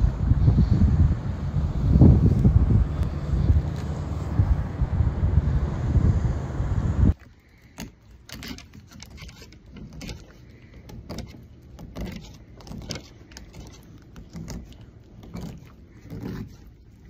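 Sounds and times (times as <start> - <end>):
knife scraping fish: 7.2 - 17.0.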